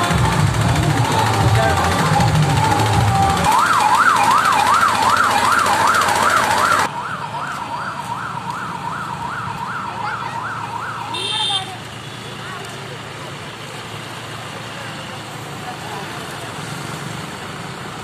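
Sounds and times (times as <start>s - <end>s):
bass-heavy music: 0.0s - 5.9s
siren-style warble: 2.0s - 11.1s.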